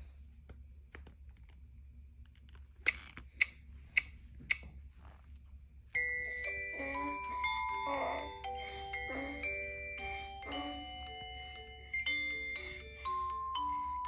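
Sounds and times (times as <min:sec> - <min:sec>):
chiming glockenspiel-like melody: 0:06.0 - 0:14.0.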